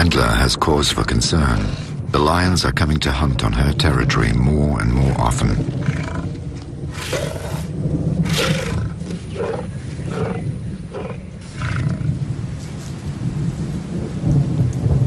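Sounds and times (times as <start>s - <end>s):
lion roaring: 1.3s - 2.1s, 5.1s - 12.2s.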